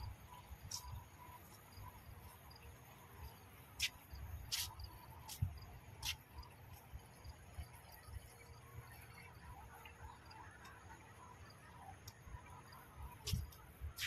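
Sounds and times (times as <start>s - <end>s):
sharp high-pitched chirps: 0.0s - 6.8s
insects chirping: 0.0s - 14.0s.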